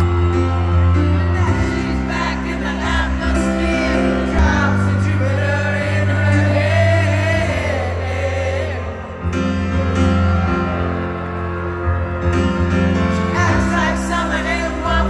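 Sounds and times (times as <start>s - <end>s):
person singing: 0.0s - 11.1s
live band with heavy bass: 0.0s - 15.0s.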